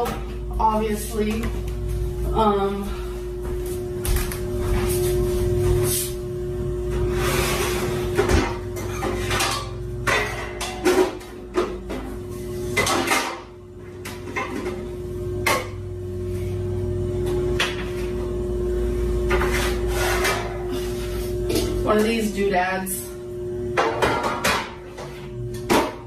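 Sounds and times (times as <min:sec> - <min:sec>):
steady hum: 0:00.0 - 0:26.0
metal baking pans clattering: 0:08.2 - 0:12.1, 0:12.8 - 0:13.5.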